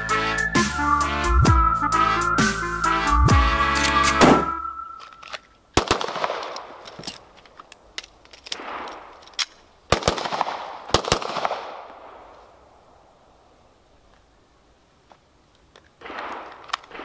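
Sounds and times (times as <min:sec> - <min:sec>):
pistol shots echoing: 0:04.2 - 0:04.6, 0:05.8 - 0:06.8, 0:08.6 - 0:09.1, 0:09.9 - 0:12.2, 0:16.0 - 0:17.0
magazine change clicks and knocks: 0:05.0 - 0:09.6, 0:15.6 - 0:17.0.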